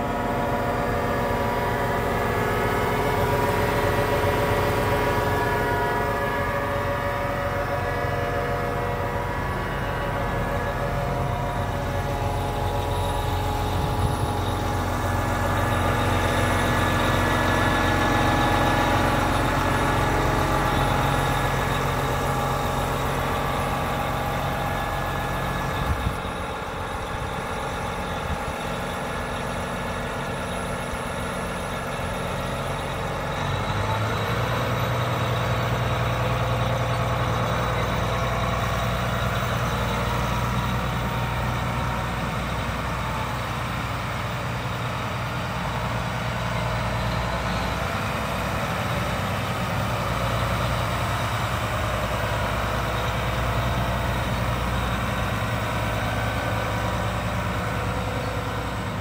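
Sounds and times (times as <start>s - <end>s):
tractor diesel engine idling: 0.0s - 59.0s.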